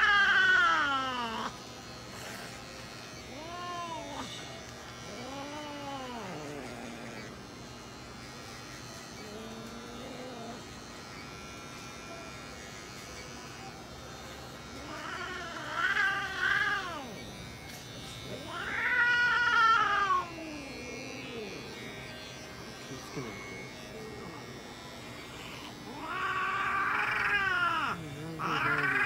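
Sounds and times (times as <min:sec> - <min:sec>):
cat yowling: 0:00.0 - 0:01.6, 0:03.2 - 0:04.4, 0:14.8 - 0:17.2, 0:18.3 - 0:21.8, 0:25.4 - 0:29.0
electric clipper buzzing: 0:00.0 - 0:29.0.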